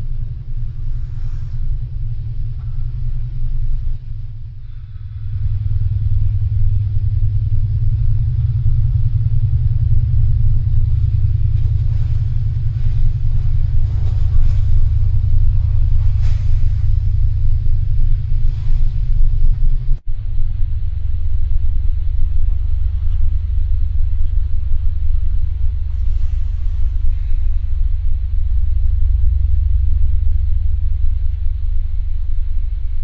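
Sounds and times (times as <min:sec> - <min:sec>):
deep rumbling drone: 0:00.0 - 0:33.0.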